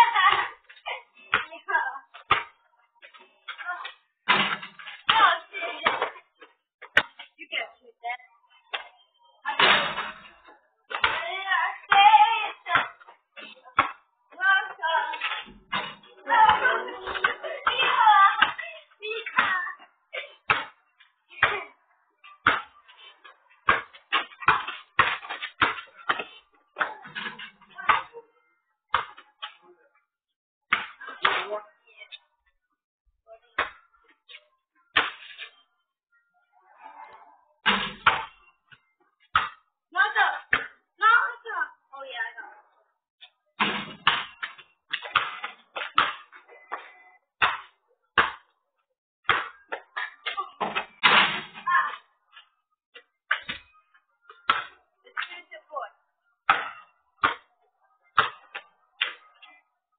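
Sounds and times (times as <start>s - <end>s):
ball bouncing on asphalt: 1.3s - 7.3s, 10.9s - 14.1s, 17.2s - 19.8s, 20.4s - 21.7s, 22.3s - 28.1s, 28.9s - 29.6s, 30.7s - 31.5s, 33.6s - 33.9s, 37.6s - 40.8s, 43.6s - 48.6s, 49.2s - 55.6s, 56.4s - 59.5s.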